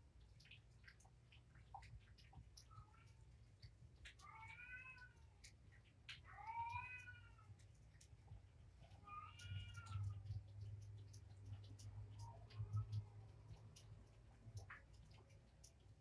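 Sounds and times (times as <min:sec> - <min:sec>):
kitten meowing: 0:04.2 - 0:05.2, 0:06.3 - 0:07.5, 0:09.0 - 0:10.3.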